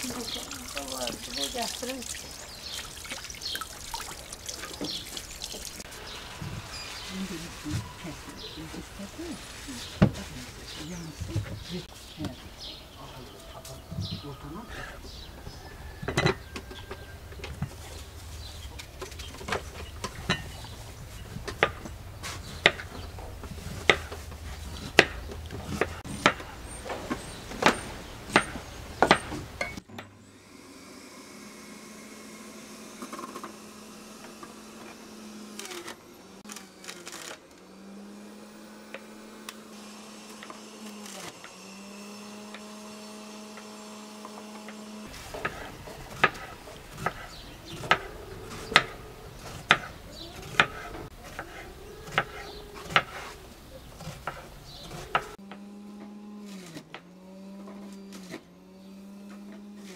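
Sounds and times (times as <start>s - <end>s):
small electric motor hum: 28.6s - 59.9s.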